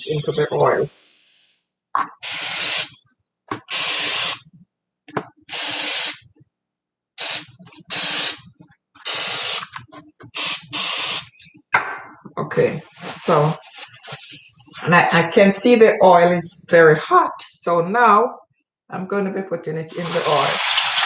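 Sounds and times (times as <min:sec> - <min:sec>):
aerosol spray hissing: 0:02.2 - 0:03.0, 0:03.7 - 0:04.4, 0:05.5 - 0:06.2, 0:07.2 - 0:08.4, 0:09.0 - 0:09.6, 0:10.4 - 0:11.3.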